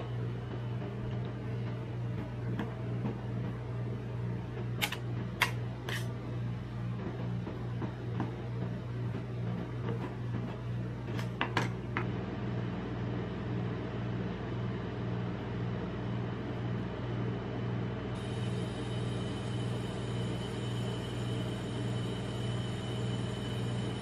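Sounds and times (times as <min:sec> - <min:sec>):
cold plate machine humming: 0:00.0 - 0:24.0.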